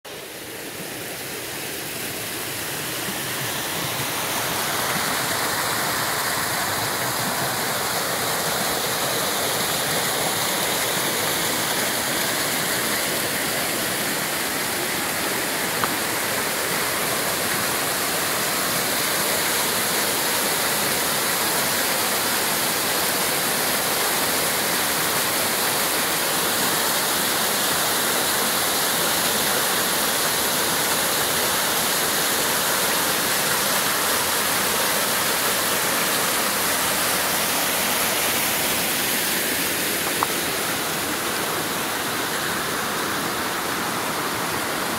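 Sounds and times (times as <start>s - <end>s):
waterfall splashing over rocks: 0.1s - 44.9s.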